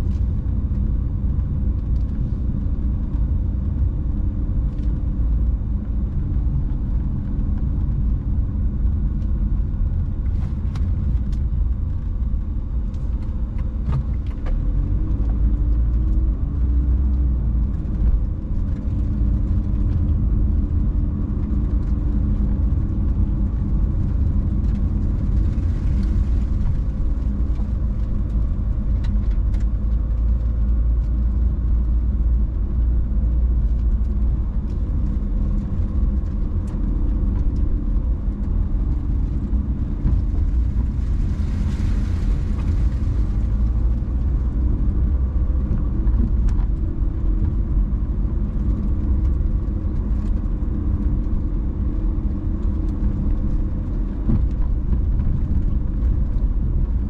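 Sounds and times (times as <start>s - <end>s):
car road and engine rumble: 0.0s - 57.0s.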